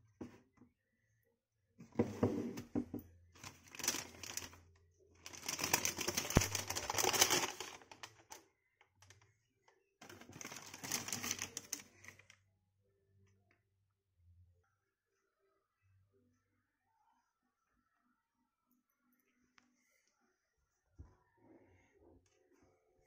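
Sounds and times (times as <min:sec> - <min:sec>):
tissue paper crinkling and rustling: 0:03.4 - 0:04.6, 0:05.2 - 0:08.4, 0:10.0 - 0:12.3.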